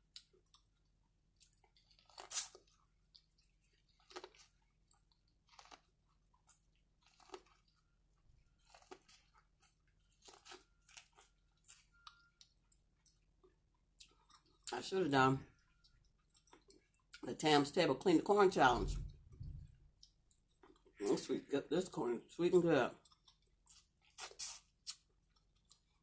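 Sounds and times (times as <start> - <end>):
corn cob crunching and chewing: 0.0 - 17.2, 20.0 - 21.3, 22.9 - 26.0.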